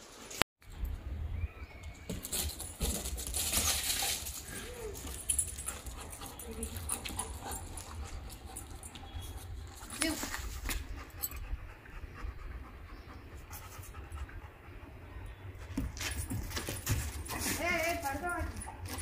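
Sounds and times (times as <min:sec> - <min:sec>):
dog panting: 0:03.8 - 0:15.6.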